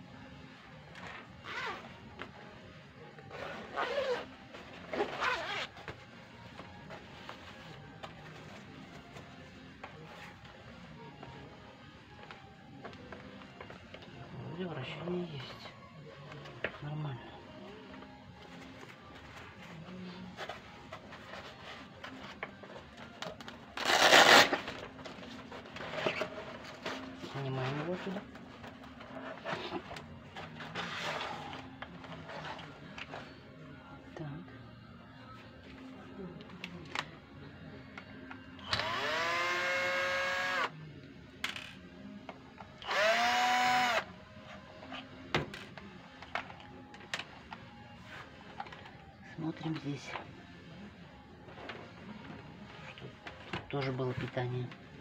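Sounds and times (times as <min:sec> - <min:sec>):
cordless screwdriver whining: 0:38.6 - 0:40.7, 0:42.8 - 0:44.1.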